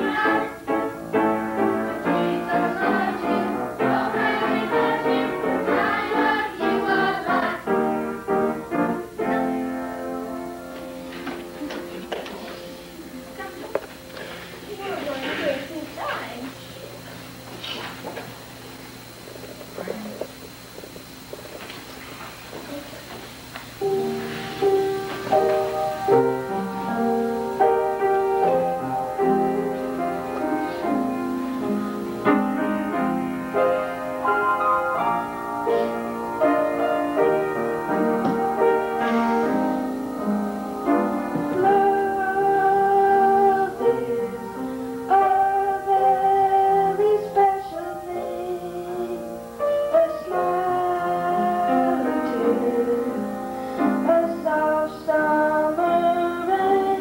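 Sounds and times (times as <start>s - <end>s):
voices singing: 0.0s - 8.3s, 23.7s - 33.0s, 40.8s - 53.4s, 54.0s - 57.0s
piano accompaniment: 0.0s - 21.3s, 23.7s - 57.0s.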